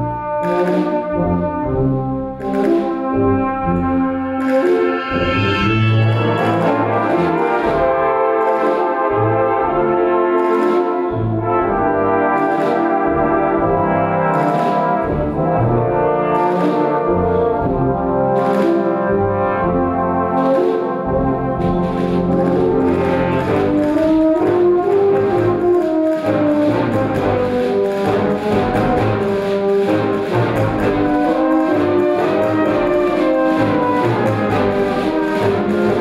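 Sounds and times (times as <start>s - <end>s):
brass band playing chords: 0.0s - 36.0s
sharp high percussion strokes: 4.4s - 7.4s.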